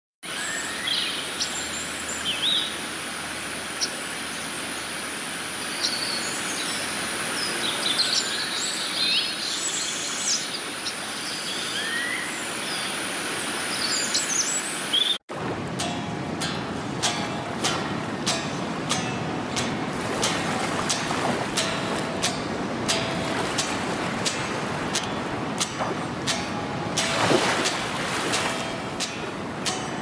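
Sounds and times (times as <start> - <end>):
birds chirping and trilling: 0.3 - 2.9, 5.6 - 15.2
river flowing: 0.3 - 30.0.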